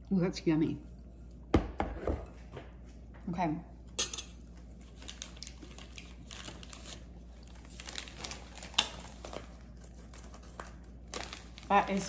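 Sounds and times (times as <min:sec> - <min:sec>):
plastic packaging crinkling: 0:04.6 - 0:12.0.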